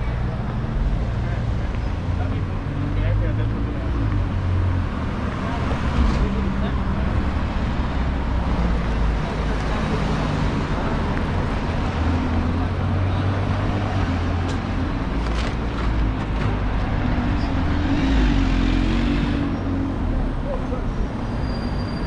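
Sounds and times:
cars driving past: 0.8 - 22.0.

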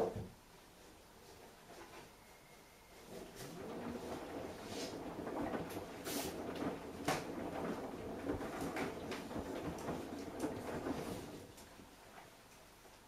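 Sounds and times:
washing machine churning: 3.1 - 12.2
laundry knocking in drum: 5.2 - 11.4.

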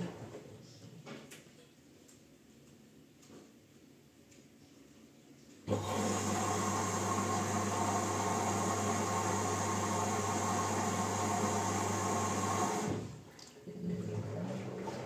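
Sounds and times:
washing machine hum: 5.6 - 15.0
water rushing into machine: 5.7 - 15.0.

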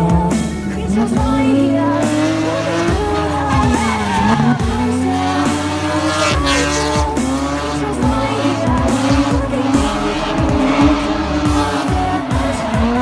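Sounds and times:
car engine revving: 0.0 - 13.0
tyres squealing and skidding: 2.1 - 13.0.

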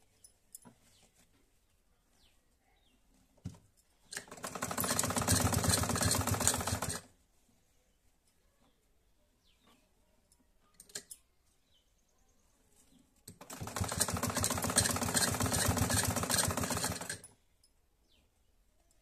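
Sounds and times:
sewing machine stitching: 4.1 - 7.1, 13.3 - 17.3.

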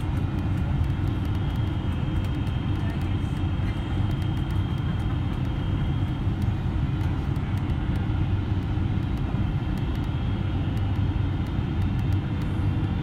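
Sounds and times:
airplane cabin engine rumble: 0.0 - 13.0.

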